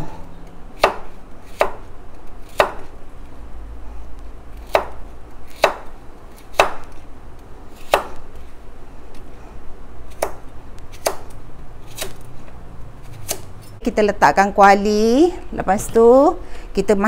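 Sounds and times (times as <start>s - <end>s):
knife chopping on cutting board: 0.8s - 2.9s, 4.6s - 7.0s, 7.8s - 8.2s, 10.1s - 11.3s.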